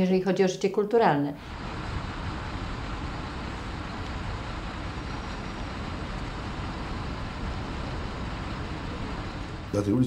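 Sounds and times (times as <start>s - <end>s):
engine rumble with hiss: 1.4s - 10.0s.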